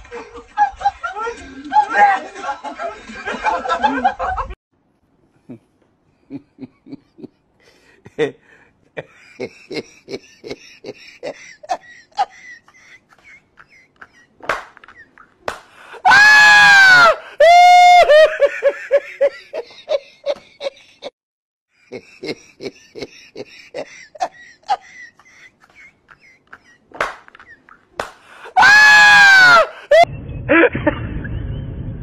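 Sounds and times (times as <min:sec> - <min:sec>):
person laughing: 0:09.0 - 0:15.4, 0:21.8 - 0:28.0, 0:29.7 - 0:31.1.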